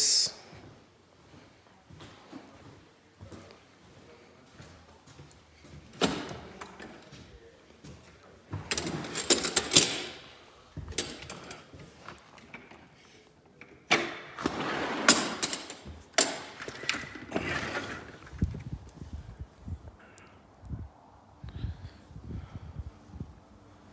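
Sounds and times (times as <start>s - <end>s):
sliding glass door rattling: 14.1s - 18.5s.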